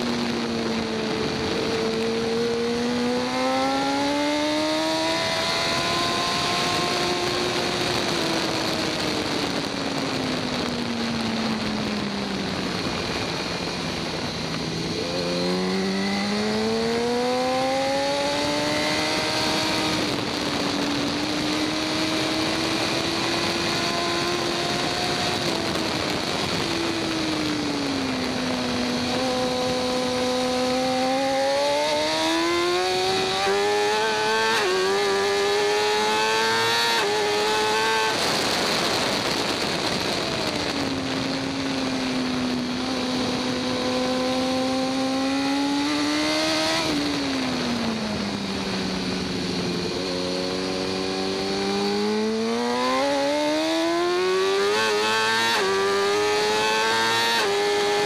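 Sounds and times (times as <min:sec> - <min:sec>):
motorcycle engine revving: 0:00.0 - 0:58.0
wind noise: 0:00.0 - 0:58.0.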